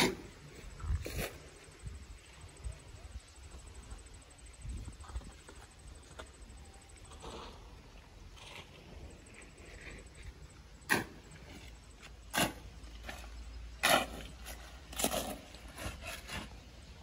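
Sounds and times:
trowel scraping through sand: 12.3s - 17.0s.

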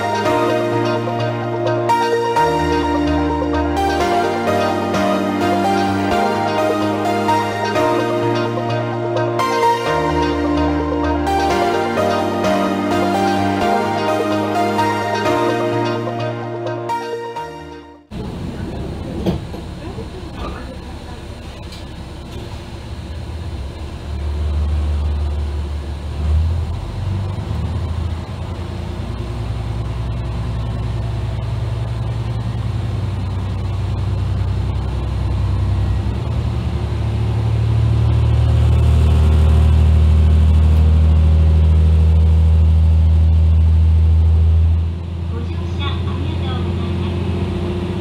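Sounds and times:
diesel railcar engine drone: 0.0s - 48.0s
rail and wheel noise: 18.1s - 48.0s.

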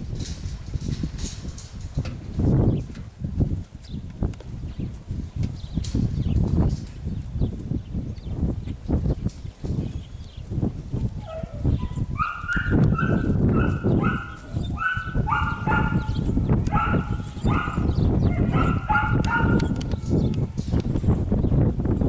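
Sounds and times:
puppy yipping: 11.2s - 19.8s.

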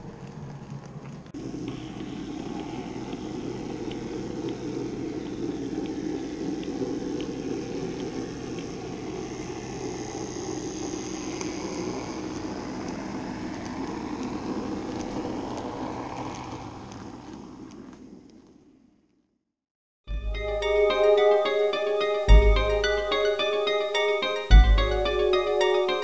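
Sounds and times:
model train motor and wheel rumble: 0.0s - 19.0s.

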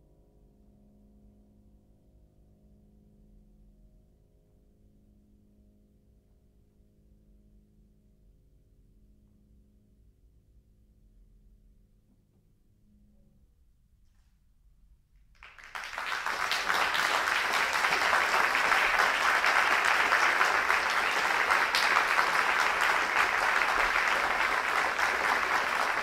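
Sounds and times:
audience applauding: 15.4s - 26.0s.

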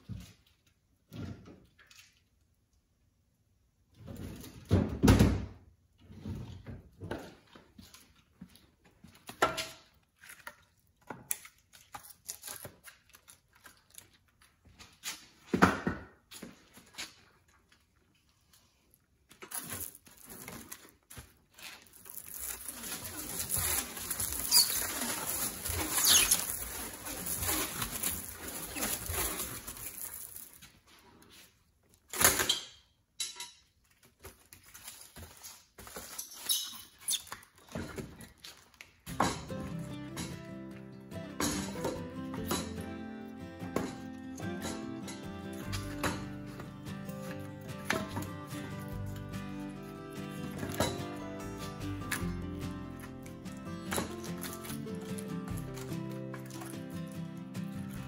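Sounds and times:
stretch film crackling: 19.4s - 31.1s, 45.3s - 58.0s
short squeaks: 22.6s - 28.0s, 36.2s - 37.4s.

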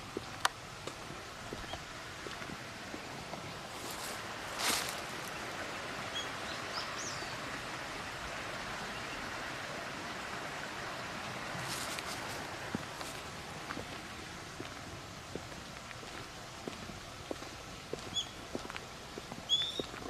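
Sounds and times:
rushing hiss: 6.4s - 14.4s.

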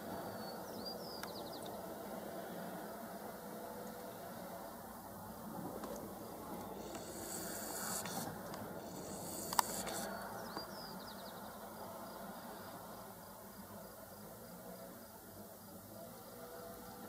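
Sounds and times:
vultures hissing: 6.7s - 10.4s
sharp click: 9.3s - 10.0s.

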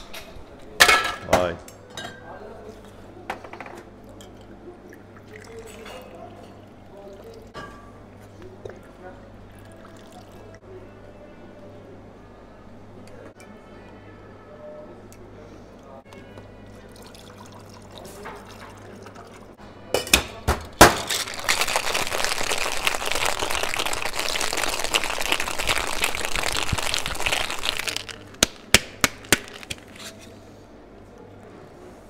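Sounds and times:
ice cubes rattling: 21.1s - 28.2s.

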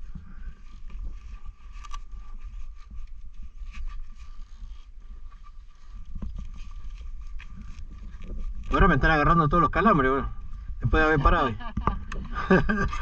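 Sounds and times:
wind rumble on microphone: 0.0s - 13.0s
gloves rustling and clicking: 0.8s - 8.7s.

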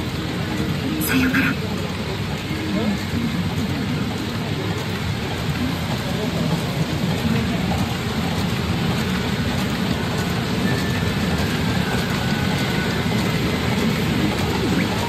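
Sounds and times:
pachinko parlour din: 0.2s - 2.1s.

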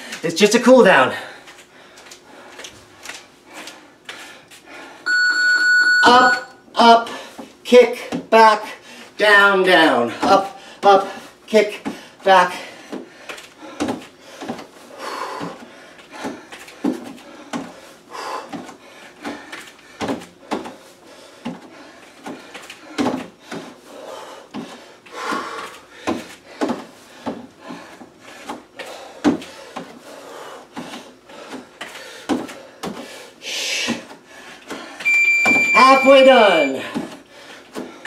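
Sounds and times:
bare feet thumping on plastic step: 13.7s - 14.7s, 15.4s - 17.7s, 18.5s - 20.8s, 21.4s - 23.7s, 24.5s - 28.6s, 29.2s - 29.9s, 30.8s - 33.1s.

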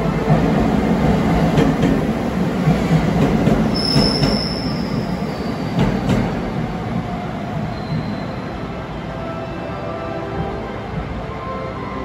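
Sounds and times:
train wheels rumbling on rail: 0.0s - 9.2s
high thin wheel squeal: 3.7s - 5.7s.

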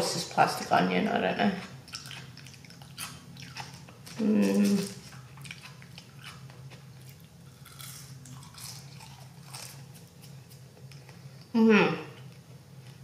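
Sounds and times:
chewing french fries: 1.4s - 11.5s.

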